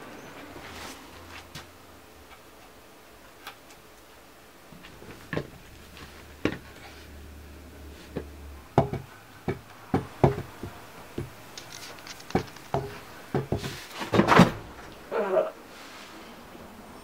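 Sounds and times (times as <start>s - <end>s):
wooden stool knocking on floor: 8.8s - 11.3s.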